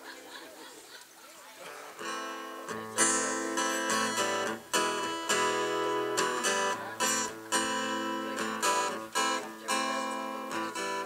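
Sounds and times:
acoustic guitar strumming chords: 0:01.9 - 0:11.0.

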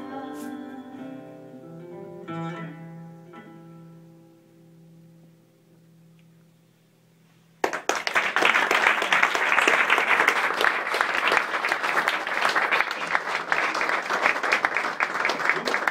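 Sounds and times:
audience applause: 0:07.6 - 0:15.9
hands clapping close to microphone: 0:07.6 - 0:15.9.

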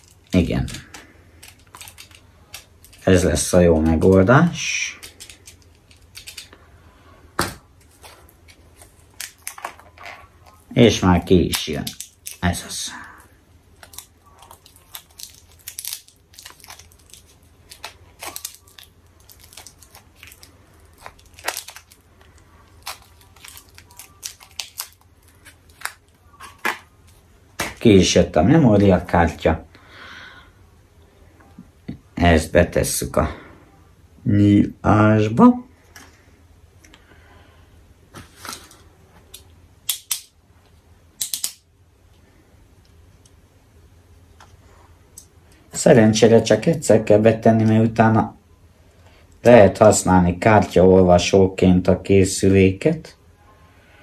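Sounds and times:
plastic packaging crinkling: 0:00.0 - 0:06.6, 0:07.8 - 0:28.0.

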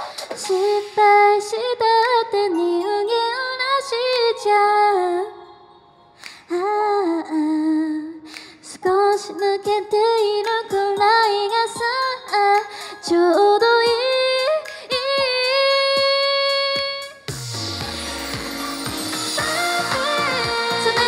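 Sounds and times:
backing track with steady beat: 0:00.0 - 0:03.3, 0:08.3 - 0:21.0
woman singing pop song: 0:00.0 - 0:21.0.

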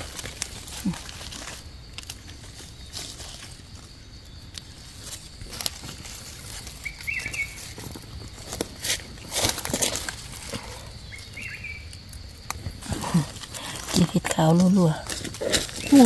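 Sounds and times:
dry leaves rustling and crackling: 0:00.0 - 0:16.0
bird chirp: 0:06.7 - 0:08.3, 0:10.5 - 0:12.0, 0:15.7 - 0:16.0.

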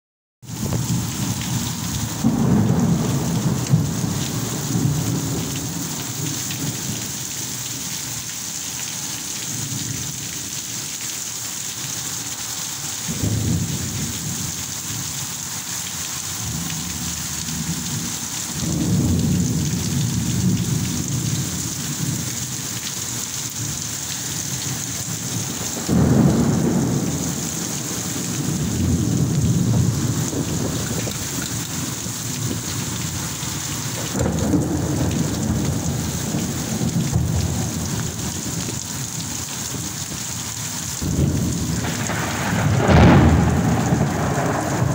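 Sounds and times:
heavy rain: 0:00.4 - 0:44.9
thunder rumbling: 0:00.5 - 0:07.0, 0:13.1 - 0:15.0, 0:16.4 - 0:22.6, 0:24.4 - 0:39.9, 0:41.0 - 0:44.9.

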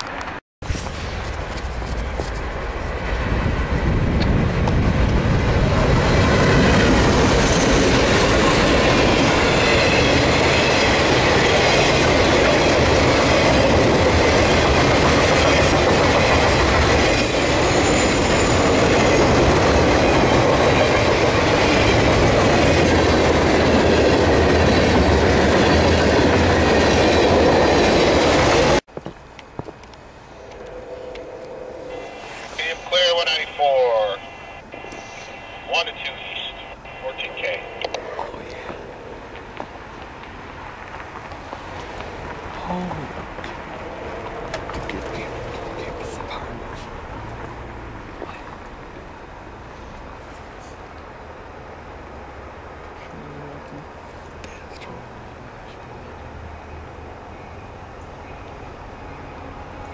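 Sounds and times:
freight train wheels clattering on rails: 0:04.2 - 0:28.8.

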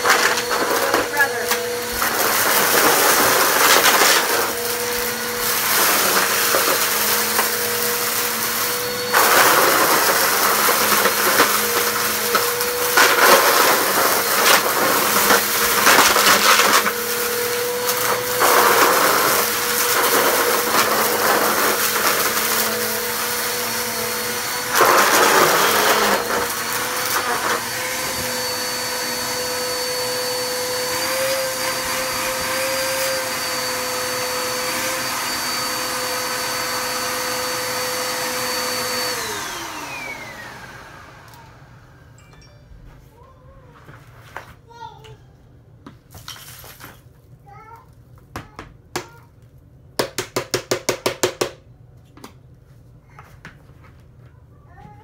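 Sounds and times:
vacuum sucking up debris: 0:00.0 - 0:41.4
vacuum cleaner motor whine: 0:00.0 - 0:42.2.

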